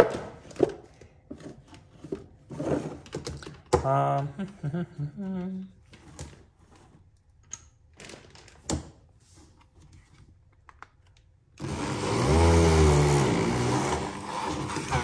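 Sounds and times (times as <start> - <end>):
hand blender motor grinding: 11.6 - 15.0.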